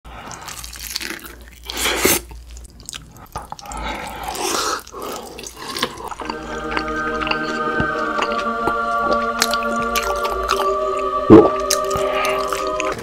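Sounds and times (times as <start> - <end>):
wet chewing of fried chicken: 0.1 - 13.0
music: 6.1 - 13.0.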